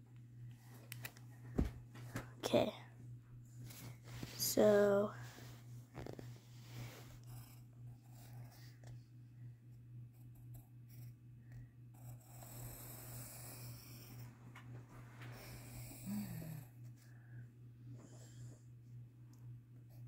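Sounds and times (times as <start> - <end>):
pulsing low hum: 5.2 - 20.0
pencil scratching on paper: 6.0 - 8.8, 11.9 - 14.3.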